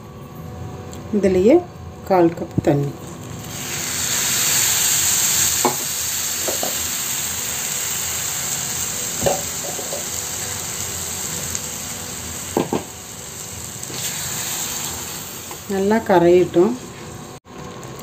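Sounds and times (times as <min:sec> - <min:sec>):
syrup sizzling and bubbling: 0:03.3 - 0:15.8.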